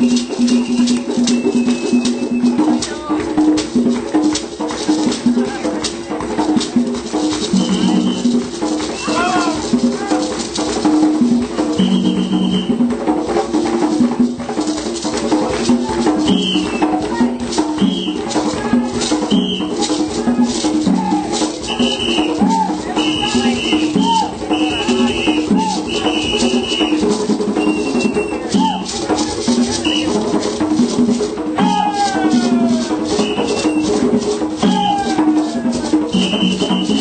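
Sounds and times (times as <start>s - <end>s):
rattles shaking: 0.0s - 37.0s
high piping notes: 16.1s - 37.0s.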